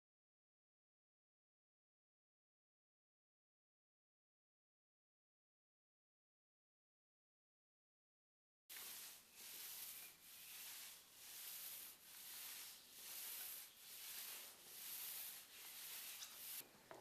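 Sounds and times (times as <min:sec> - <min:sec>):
paint roller swishing on concrete: 0:08.7 - 0:16.7.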